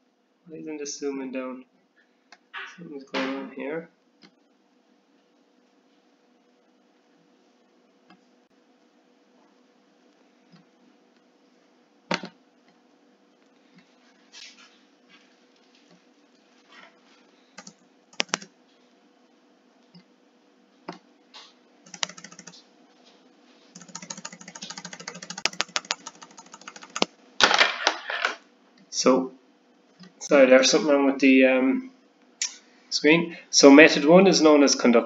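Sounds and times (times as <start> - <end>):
computer keyboard typing: 17.6 - 18.5, 21.9 - 22.6, 23.8 - 27.1.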